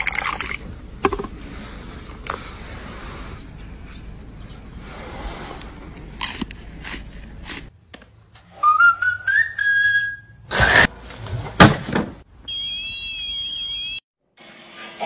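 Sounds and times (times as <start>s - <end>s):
rising whistle: 8.5s - 10.5s.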